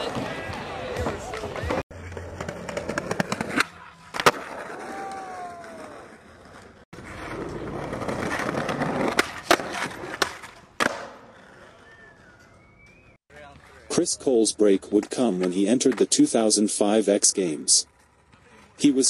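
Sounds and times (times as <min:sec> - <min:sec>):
skateboard wheels rolling: 0:00.0 - 0:14.0, 0:14.6 - 0:19.0
skateboard pops and landings: 0:02.4 - 0:05.9, 0:07.4 - 0:11.2.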